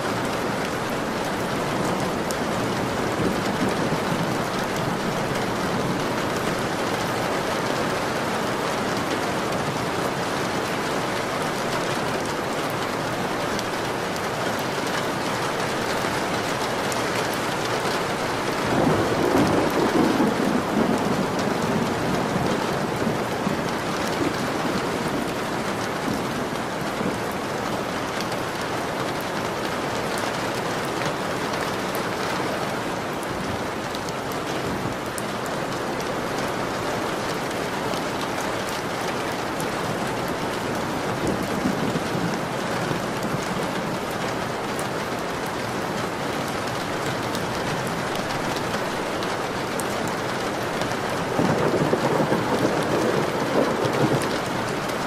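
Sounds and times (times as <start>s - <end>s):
steady rain falling: 0.0s - 55.0s
thunder rumbling: 18.0s - 27.4s, 39.5s - 44.1s, 50.9s - 55.0s.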